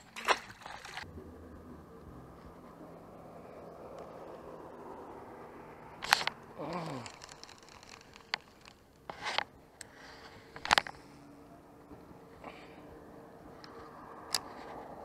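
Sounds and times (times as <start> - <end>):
low falling hum: 1.0 - 7.2
reel clicks: 6.0 - 11.2.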